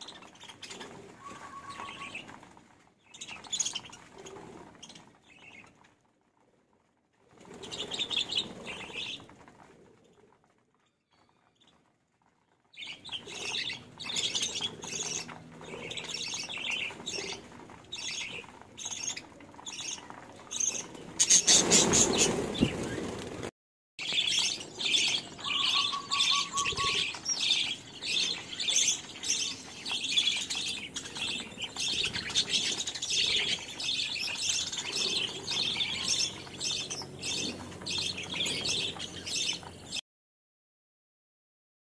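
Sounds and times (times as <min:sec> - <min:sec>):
wing flapping: 0:00.0 - 0:40.0
budgerigars chirping: 0:24.2 - 0:39.7.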